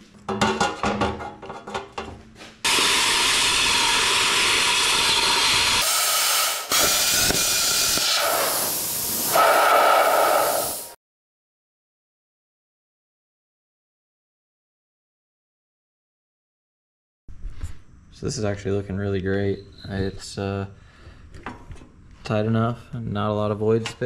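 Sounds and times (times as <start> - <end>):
plasma cutter hissing: 2.7 - 11.0.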